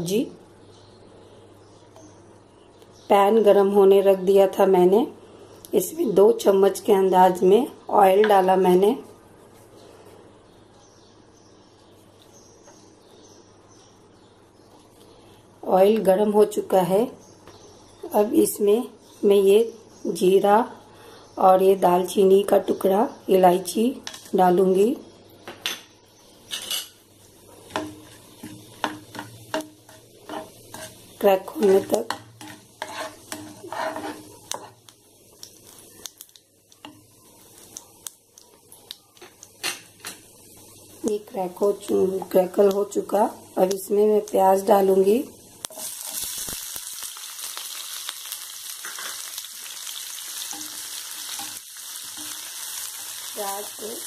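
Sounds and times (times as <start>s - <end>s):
spices sizzling in oil: 21.6s - 54.0s
spatula scraping frying pan: 26.5s - 27.0s, 27.6s - 34.9s.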